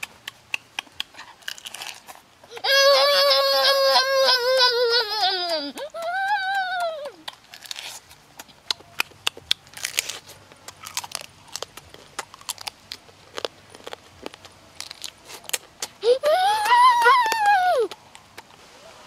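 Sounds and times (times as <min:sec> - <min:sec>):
crab shell cracking: 0:00.0 - 0:02.2
person chewing: 0:00.0 - 0:02.9, 0:05.4 - 0:18.6.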